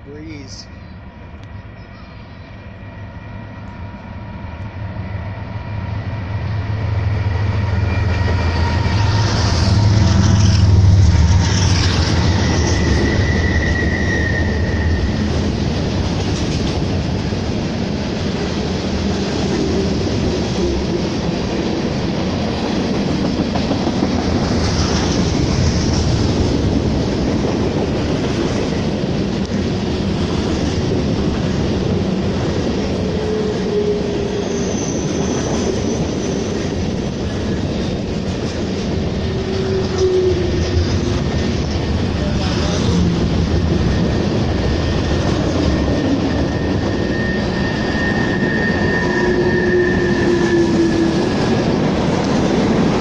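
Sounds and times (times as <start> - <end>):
diesel locomotive engines: 0.0 - 53.0
train wheels on rails: 0.4 - 53.0
high-pitched squeal: 1.8 - 15.4, 32.8 - 36.8, 42.2 - 51.6.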